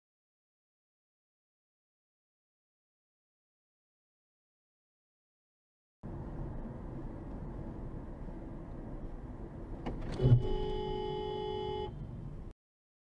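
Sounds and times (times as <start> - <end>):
car road and engine noise: 6.0 - 12.6
car horn held: 10.1 - 11.9.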